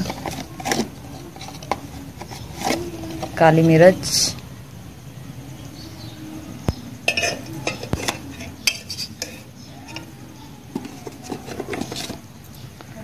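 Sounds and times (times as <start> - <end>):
spoon clinking against plastic bowl: 7.1 - 12.1.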